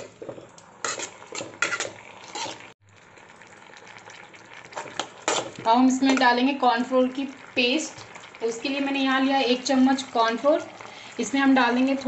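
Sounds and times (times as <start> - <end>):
ladle scraping a wok: 0.0 - 2.8, 4.7 - 6.2
sauce simmering hiss: 2.0 - 12.0.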